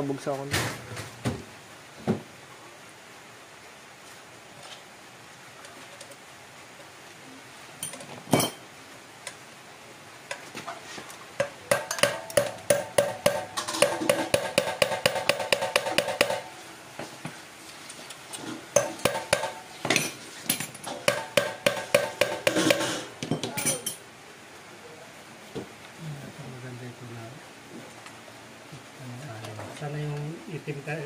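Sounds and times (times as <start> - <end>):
hammer tapping on metal: 11.4 - 16.5, 18.8 - 20.1, 20.9 - 23.8.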